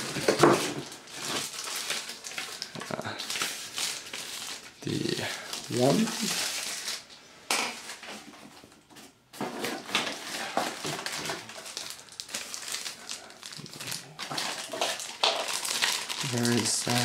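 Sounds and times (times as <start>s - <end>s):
plastic packaging crinkling: 0.0s - 8.5s, 9.6s - 17.0s
cardboard rustling and scraping: 7.7s - 11.8s.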